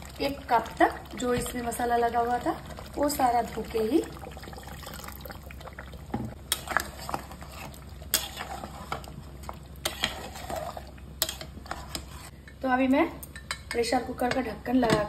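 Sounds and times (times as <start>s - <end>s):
liquid sloshing: 0.0s - 12.3s
spatula stirring thick curry: 6.4s - 12.4s.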